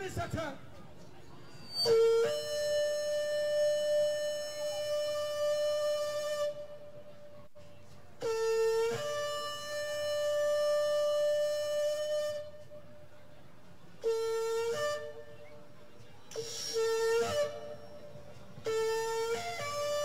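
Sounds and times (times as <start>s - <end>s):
shofar blasts: 1.6s - 7.3s, 8.2s - 13.0s, 14.0s - 15.5s, 16.3s - 20.0s.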